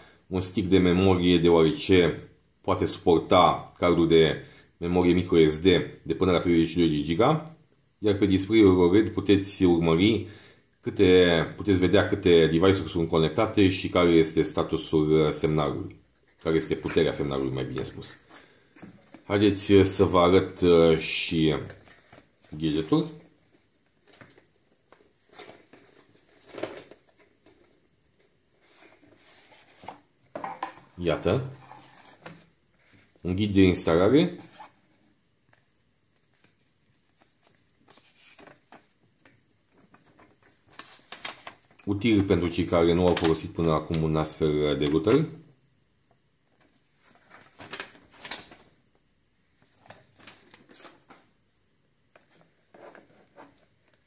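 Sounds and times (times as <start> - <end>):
paper rustling: 21.5 - 45.4, 46.5 - 51.4, 52.1 - 54.0.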